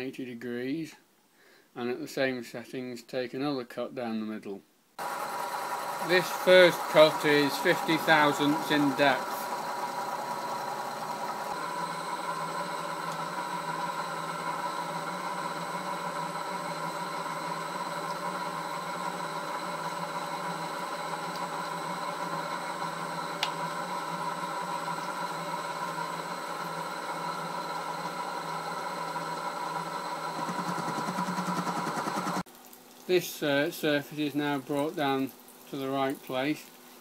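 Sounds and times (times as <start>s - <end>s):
milling machine running: 5.0s - 32.5s.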